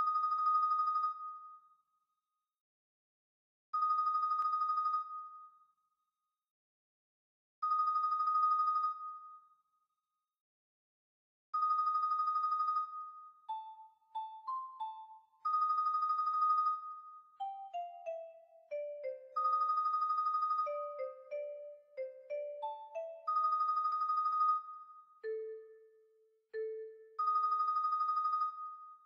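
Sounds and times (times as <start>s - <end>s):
marimba tremolo chords: 17.4s - 19.4s, 20.7s - 23.3s.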